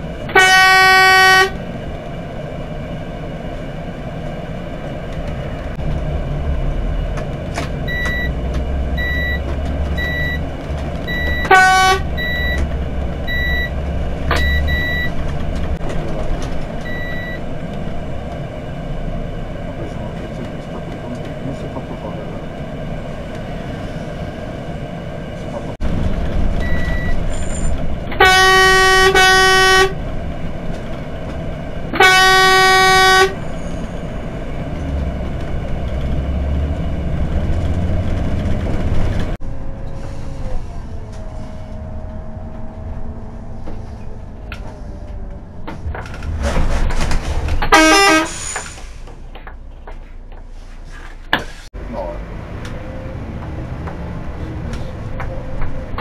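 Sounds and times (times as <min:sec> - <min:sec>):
bus engine running: 0:00.0 - 0:56.0
road noise: 0:00.0 - 0:56.0
bus horn honking: 0:00.2 - 0:01.6, 0:11.1 - 0:13.5, 0:26.8 - 0:30.0, 0:31.9 - 0:33.6, 0:47.6 - 0:48.8.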